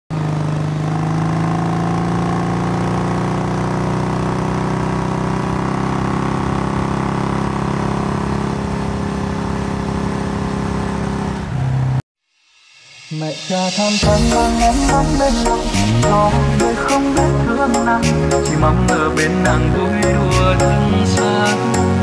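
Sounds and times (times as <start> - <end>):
motorcycle engine running: 0.1 - 12.0.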